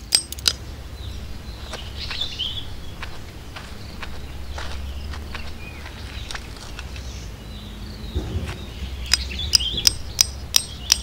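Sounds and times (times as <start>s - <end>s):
hammer striking tent stake: 9.1s - 11.0s.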